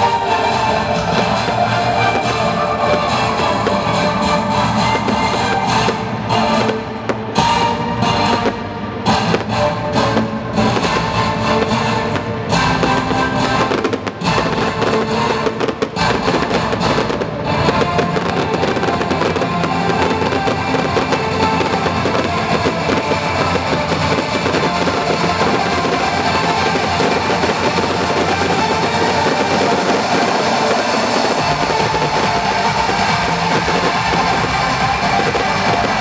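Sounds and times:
fireworks bangs and crackle: 0.0s - 36.0s
loud show music: 0.0s - 36.0s.

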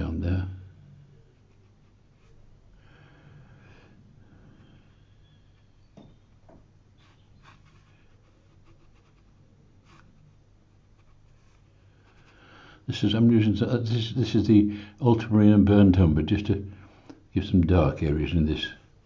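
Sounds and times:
brush stroking on paper: 1.2s - 2.6s, 5.0s - 12.6s.

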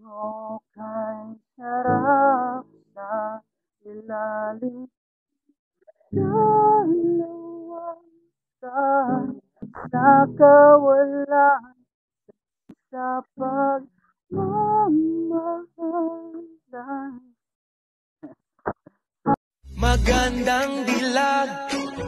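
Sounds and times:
person singing muffled: 19.7s - 22.0s.

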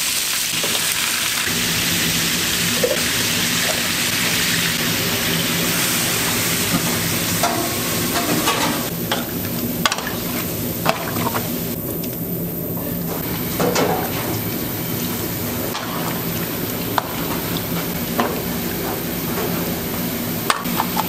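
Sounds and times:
food sizzling in a pan: 0.0s - 9.4s.

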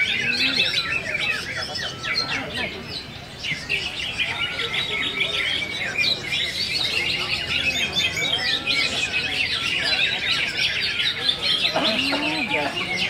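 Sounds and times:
birds chirping and whistling: 0.0s - 13.0s.

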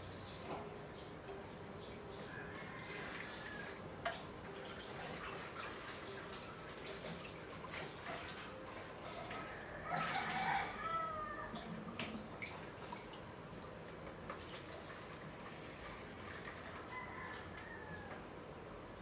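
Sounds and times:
water splashing and dripping: 2.7s - 17.0s.

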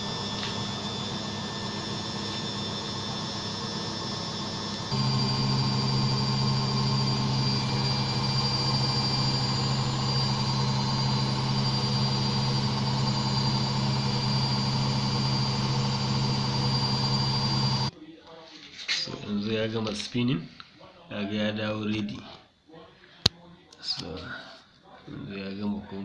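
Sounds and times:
washing machine spinning: 0.0s - 17.9s.

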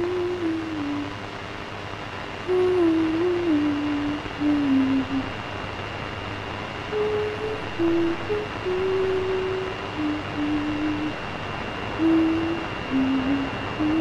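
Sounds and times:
low hum: 0.0s - 14.0s
steady hiss: 0.0s - 14.0s
thin high whine: 0.0s - 14.0s
slow wordless melody: 12.0s - 14.0s.

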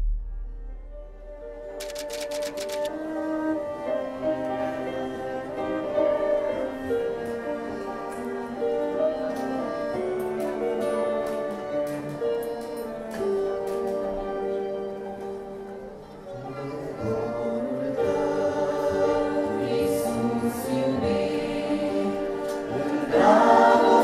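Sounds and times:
quick run of clicks: 1.8s - 2.9s
cello and violin playing slowly: 2.9s - 24.0s.

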